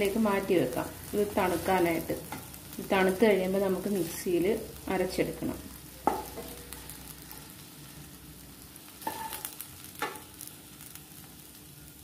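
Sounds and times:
faint sizzle: 0.0s - 12.0s
wooden spatula scraping a pan: 9.0s - 10.2s.

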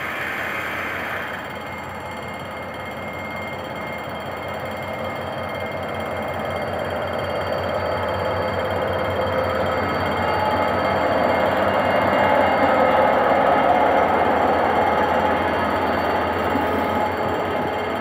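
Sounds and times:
diesel locomotive engine rumble: 0.0s - 18.0s.

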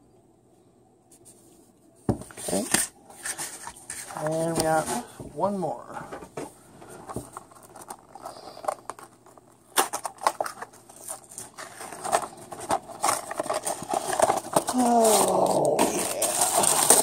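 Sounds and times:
packaging crinkling and tearing: 7.3s - 17.0s.

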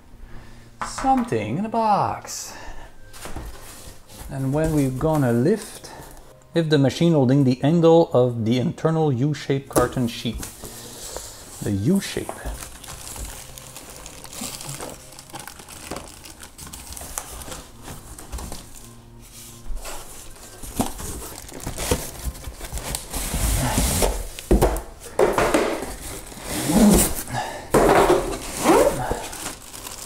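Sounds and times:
cardboard packaging rustling: 3.1s - 6.2s, 10.2s - 30.0s.

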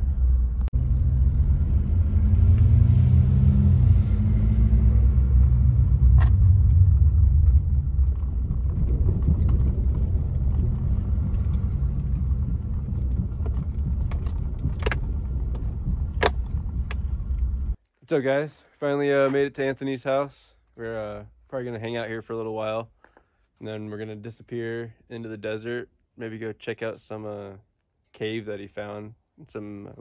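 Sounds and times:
truck engine and road rumble: 0.0s - 17.8s.

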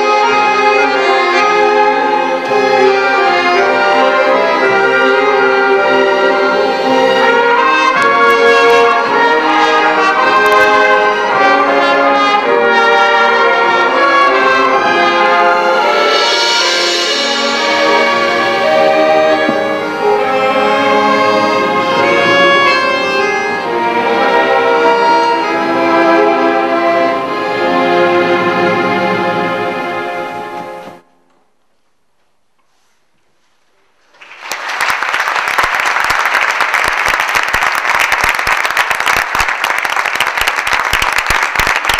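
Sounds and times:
orchestra with accordion playing: 0.0s - 31.1s
audience applause: 34.1s - 41.9s.

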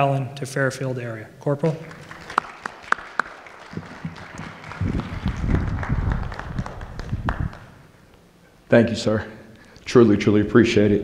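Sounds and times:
audience applauding: 1.7s - 7.9s.

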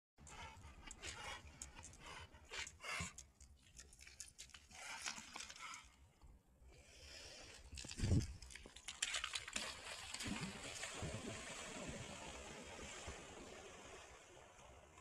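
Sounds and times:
dog panting: 0.2s - 3.5s.

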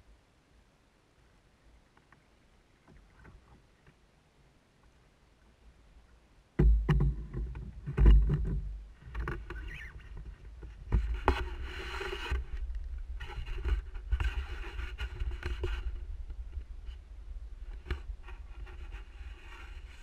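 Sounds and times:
rubbing scrapes against camera: 9.1s - 16.1s, 17.7s - 20.0s.

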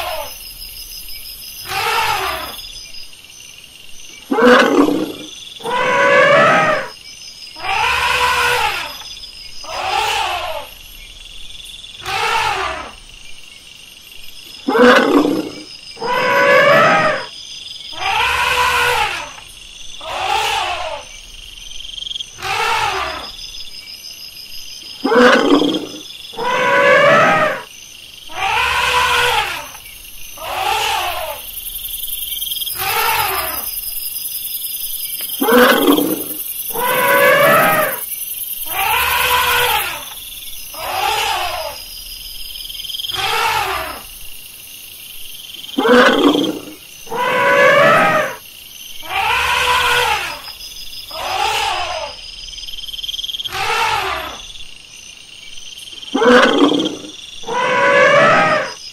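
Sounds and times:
elephants trumpeting: 28.3s - 29.7s, 40.8s - 41.8s, 43.2s - 44.0s, 45.8s - 48.4s, 49.1s - 50.4s, 51.1s - 52.1s, 53.5s - 54.4s, 56.2s - 58.8s.

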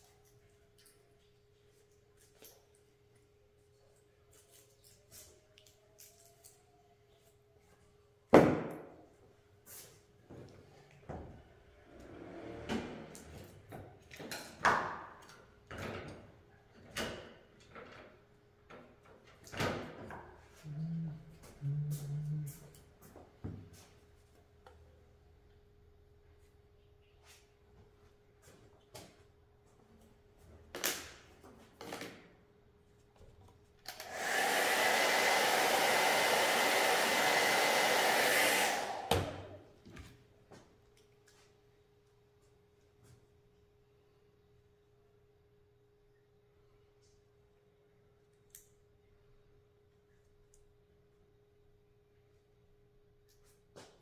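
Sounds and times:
hair dryer blowing: 33.9s - 39.6s.

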